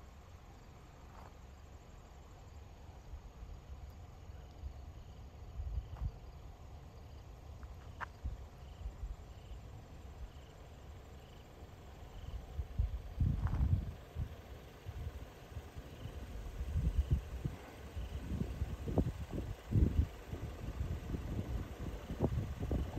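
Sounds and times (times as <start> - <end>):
faint insect chirping: 0.0 - 22.9
wind rumbling on microphone: 4.5 - 6.4, 12.2 - 22.9.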